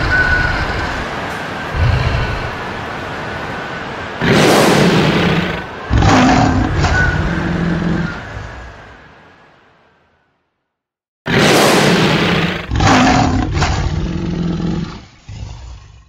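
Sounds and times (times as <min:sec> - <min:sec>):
lion roaring: 0:00.0 - 0:03.0, 0:04.2 - 0:09.0, 0:11.3 - 0:16.0.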